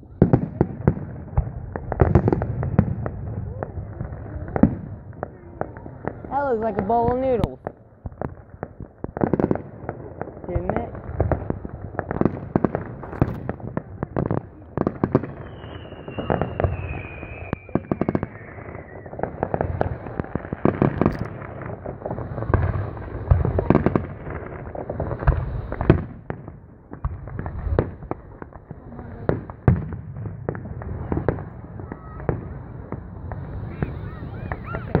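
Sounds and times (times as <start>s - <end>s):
fireworks bangs and crackling: 0.0s - 35.0s
descending firework whistle: 15.1s - 26.0s, 30.8s - 35.0s.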